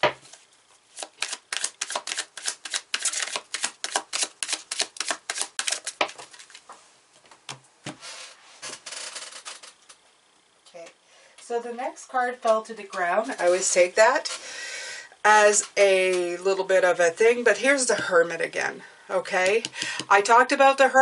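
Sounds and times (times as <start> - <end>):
cards shuffling by hand: 0.2 - 6.7
cards rubbing: 0.3 - 6.6.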